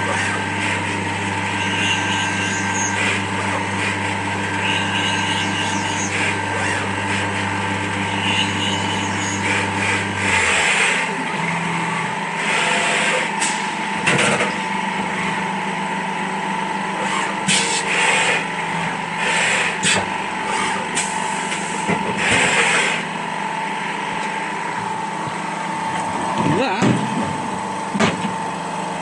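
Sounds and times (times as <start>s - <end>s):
milling machine cutting: 0.0s - 14.6s, 17.0s - 23.2s
spindle whine: 0.0s - 17.6s.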